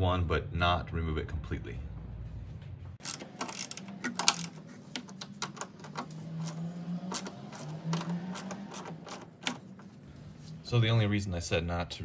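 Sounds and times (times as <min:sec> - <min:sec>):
ratcheting wrench clicking: 0:03.0 - 0:09.7.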